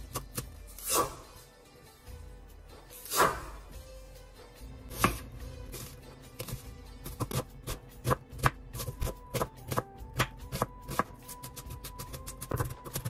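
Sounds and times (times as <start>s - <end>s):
soft background music: 0.0s - 13.0s
knife chopping on a wooden board: 4.9s - 5.3s, 6.4s - 13.0s.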